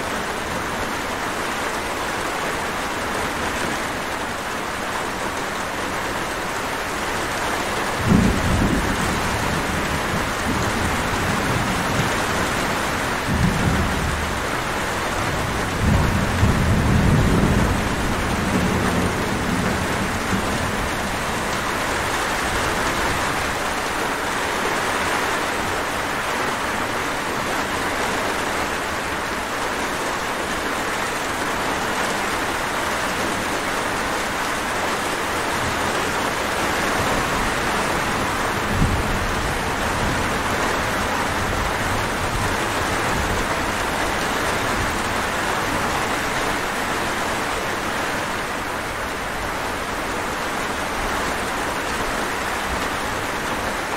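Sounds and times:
steady rain falling: 0.0 - 53.9
thunder rumble: 8.0 - 23.6.

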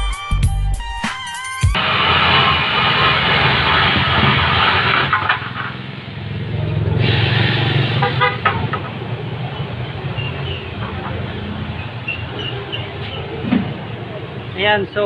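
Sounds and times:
vehicle horn toot: 7.9 - 8.8.

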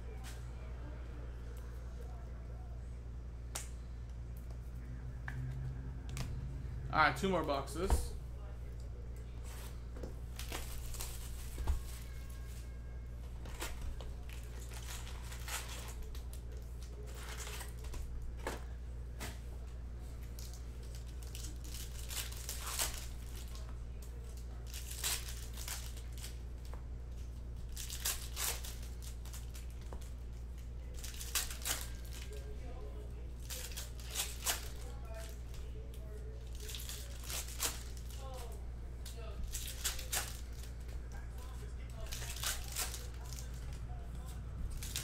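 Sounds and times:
steady low hum: 0.0 - 45.0
wrappers crinkling and ripping: 9.6 - 18.2, 20.0 - 45.0.

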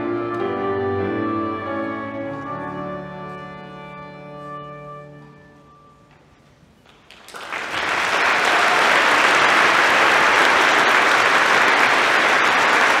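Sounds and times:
audience applauding: 6.9 - 13.0.

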